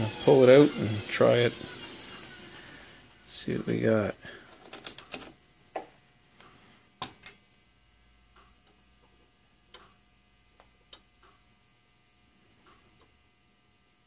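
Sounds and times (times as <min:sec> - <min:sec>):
small metal clicks and taps: 0:10.6 - 0:11.5.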